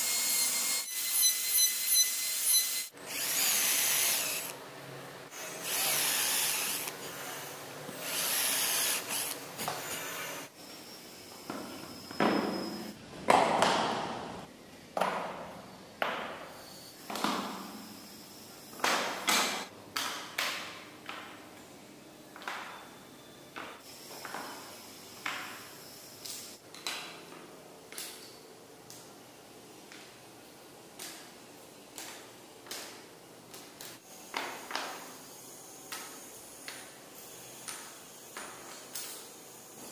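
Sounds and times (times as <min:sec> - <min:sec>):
rotary carving tool whining: 0:00.0 - 0:04.6, 0:05.3 - 0:13.0.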